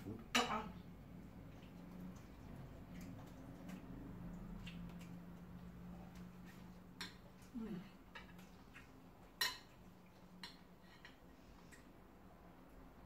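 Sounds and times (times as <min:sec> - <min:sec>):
cutlery clicking and scraping on plates: 0:09.3 - 0:09.8.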